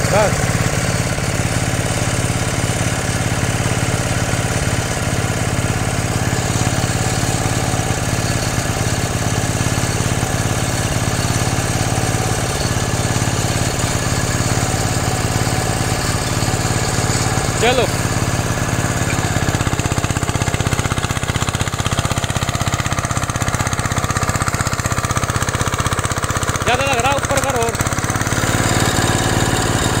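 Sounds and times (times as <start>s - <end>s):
diesel engine idling: 0.0s - 30.0s.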